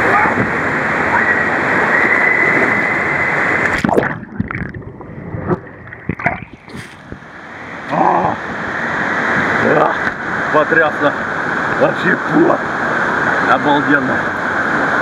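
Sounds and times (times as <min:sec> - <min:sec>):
water splashing: 0:00.0 - 0:12.2
water rushing down slide: 0:00.0 - 0:15.0
underwater gurgles and bubbling: 0:02.5 - 0:10.3.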